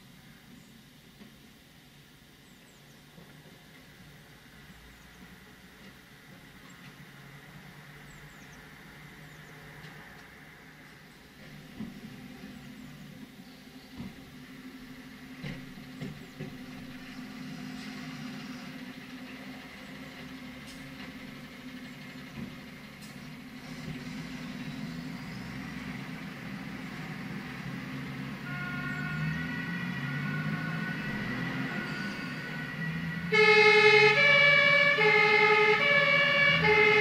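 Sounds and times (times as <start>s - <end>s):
diesel truck engines rumbling: 2.4s - 37.0s
emergency vehicle siren: 28.3s - 37.0s.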